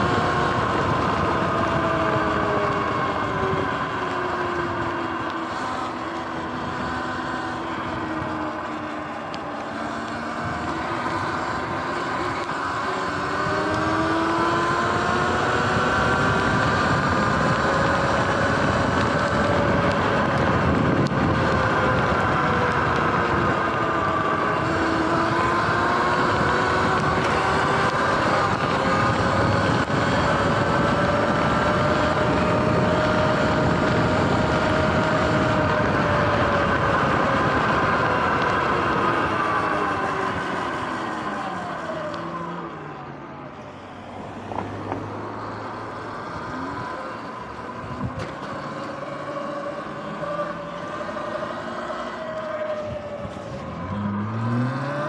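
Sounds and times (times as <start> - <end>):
electric motor whine: 0.0 - 43.2.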